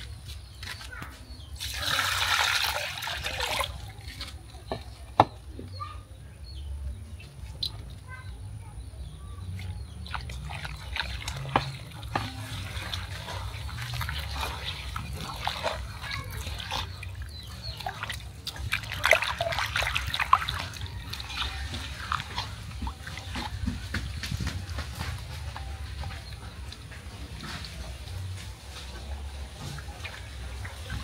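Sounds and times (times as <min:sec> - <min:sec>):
wet clicks and scrapes in bowl: 0:03.4 - 0:05.4, 0:09.4 - 0:31.0.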